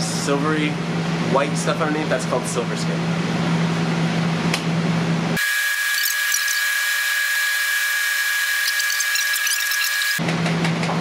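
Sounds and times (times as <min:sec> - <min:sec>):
high-pitched electronic tone: 0:05.4 - 0:10.2.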